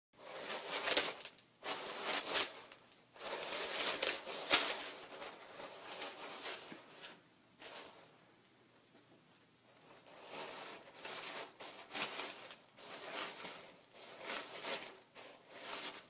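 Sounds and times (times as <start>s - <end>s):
pasta pieces rustling and rattling: 0.2s - 8.1s, 9.8s - 16.0s.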